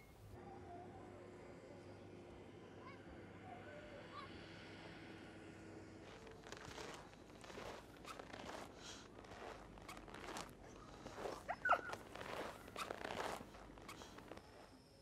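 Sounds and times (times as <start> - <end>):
footsteps in snow: 6.0 - 14.8.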